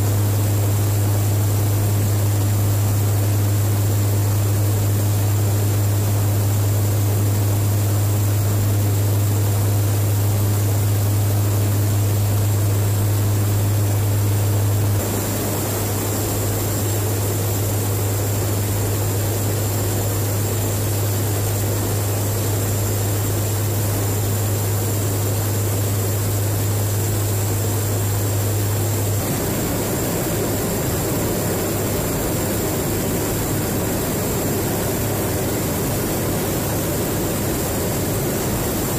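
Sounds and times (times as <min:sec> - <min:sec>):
turboprop engine drone: 0:00.0 - 0:38.9
airflow hiss: 0:15.0 - 0:17.8.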